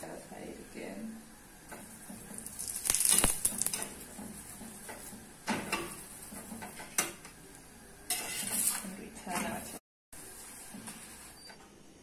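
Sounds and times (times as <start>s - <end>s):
spoon scraping a pan: 8.1s - 9.7s.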